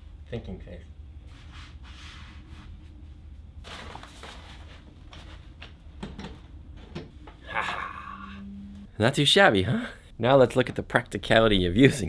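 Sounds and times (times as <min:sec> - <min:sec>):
low room hum: 0:00.0 - 0:12.0
paper rustling and scraping: 0:03.6 - 0:05.4.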